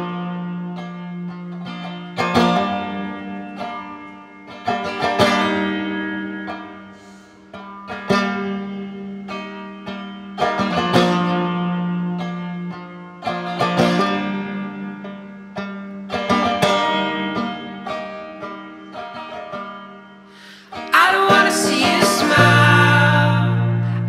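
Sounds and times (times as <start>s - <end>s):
plucked string chords: 0.0s - 24.0s
held low note: 21.3s - 24.0s.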